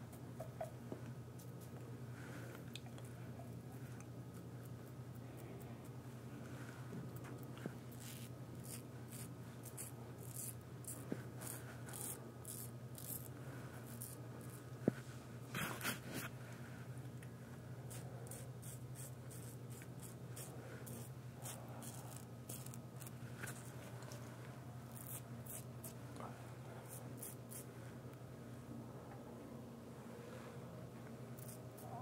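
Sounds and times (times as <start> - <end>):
steady low hum: 0.0 - 32.0
razor scraping stubble: 7.9 - 14.6, 17.9 - 23.8, 24.9 - 26.0, 26.9 - 27.7, 31.4 - 32.0.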